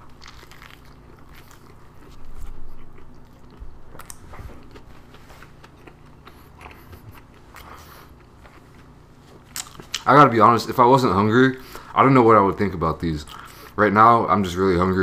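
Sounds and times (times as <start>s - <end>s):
person chewing toast: 0.0s - 10.1s.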